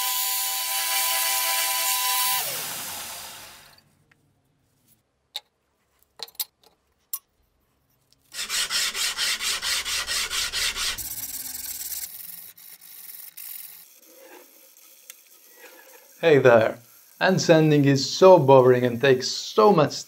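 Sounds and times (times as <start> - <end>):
sandpaper sanding metal blade: 8.3 - 20.0.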